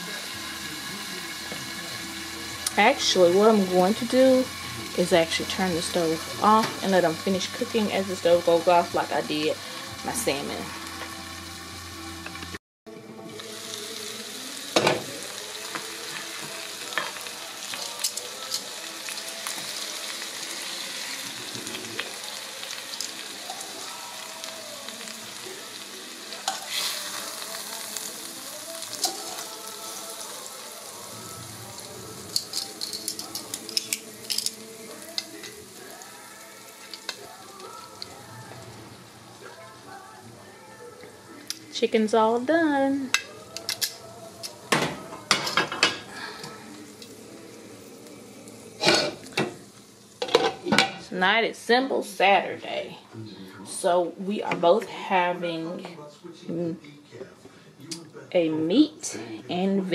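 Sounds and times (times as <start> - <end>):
chicken sizzling in oil: 0.0 - 12.6, 13.3 - 51.0
metal tongs clicking on pan: 18.0 - 18.7, 32.3 - 34.6, 43.1 - 47.1.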